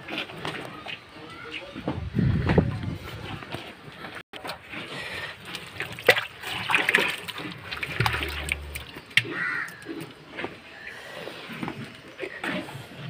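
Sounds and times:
sloshing and squelching: 3.5 - 10.8
hand stirring mash in bucket: 4.4 - 10.0.

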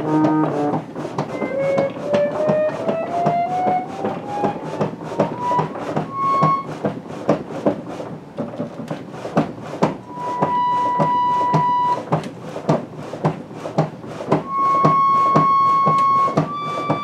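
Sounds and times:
pump organ reed notes: 0.0 - 6.7, 10.0 - 12.0, 14.4 - 17.0
rhythmic clunking of treadles: 0.0 - 17.0.

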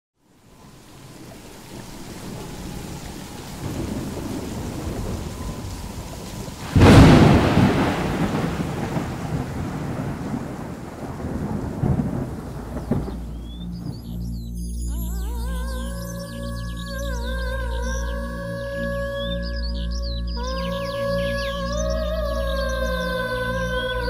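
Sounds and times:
steady rain: 0.2 - 15.0
loud rolling thunderclap: 1.7 - 14.1.

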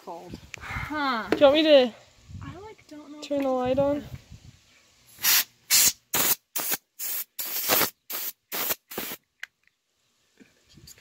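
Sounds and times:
compressed gas duster blasts: 5.2 - 9.2.

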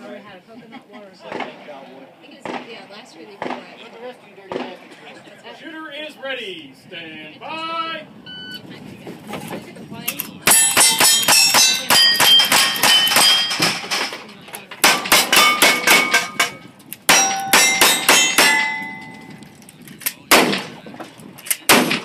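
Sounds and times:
steel target ringing clang: 10.5 - 14.1, 14.8 - 19.4
lever-action rifle shots: 20.0 - 20.8, 21.4 - 22.0
heavier gunshot: 20.3 - 20.9, 21.7 - 22.0.

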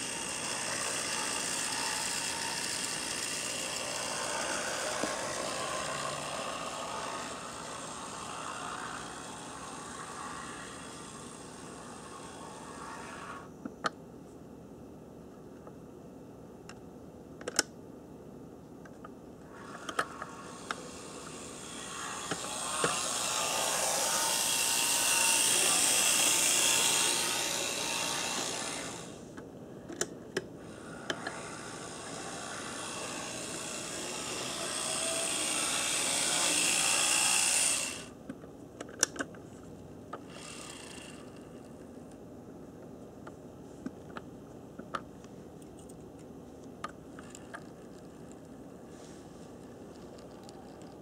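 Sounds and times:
model locomotive motor whine: 0.0 - 13.5, 19.4 - 29.3, 30.6 - 38.2, 40.2 - 41.8.

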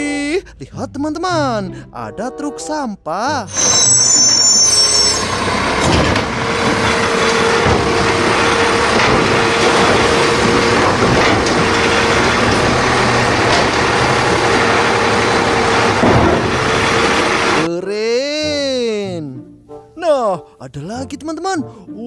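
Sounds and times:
garbage truck engine running: 3.5 - 17.7
bin clunks: 5.2 - 17.7.

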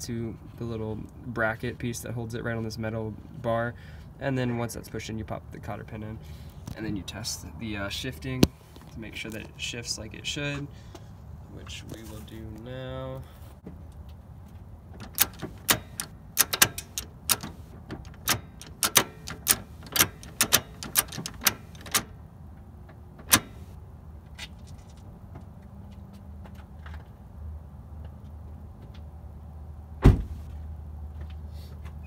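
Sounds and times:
gear shifter clicking and clunking: 15.0 - 22.1, 23.2 - 23.7.

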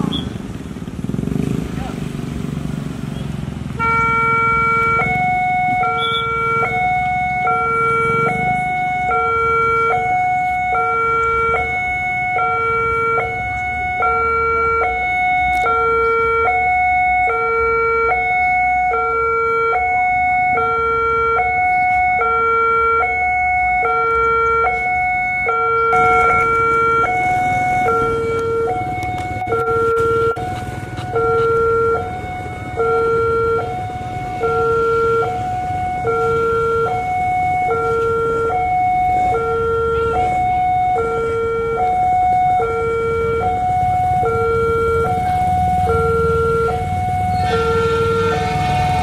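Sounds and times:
level crossing alarm two-tone: 3.8 - 49.0.

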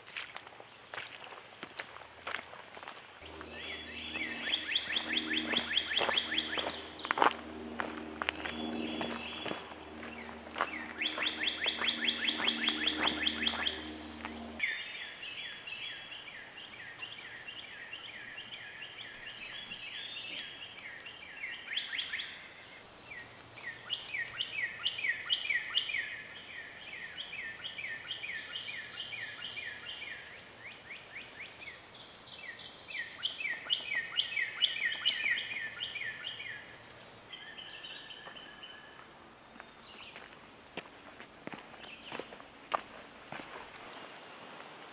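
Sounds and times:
songbirds trilling: 0.8 - 43.8
low steady drone: 3.2 - 14.6.

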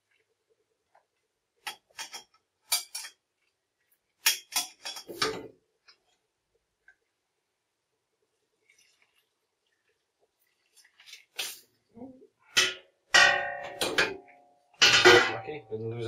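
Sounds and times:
pans clattering on a hob: 4.2 - 5.5, 12.6 - 15.4.

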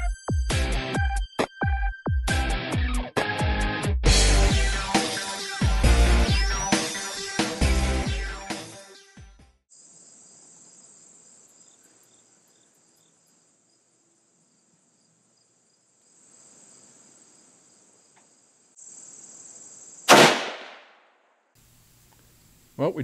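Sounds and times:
rifle shot: 20.1 - 21.1.

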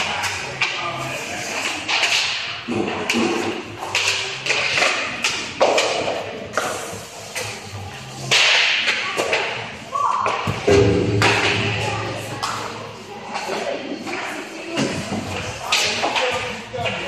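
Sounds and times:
hockey sticks and pucks clacking: 0.0 - 17.0.

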